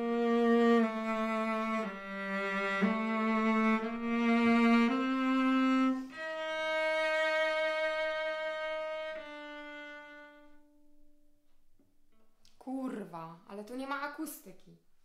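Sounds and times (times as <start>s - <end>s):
bowed cello notes: 0.0s - 11.4s.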